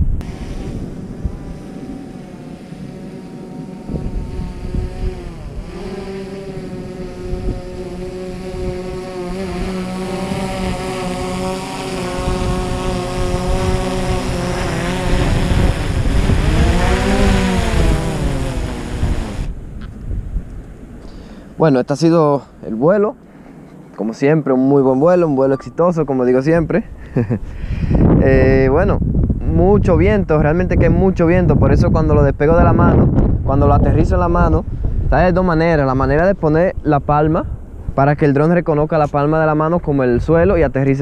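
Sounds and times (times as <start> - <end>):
drone propellers whining: 0.0 - 21.2
wind rumbling on microphone: 0.0 - 41.0.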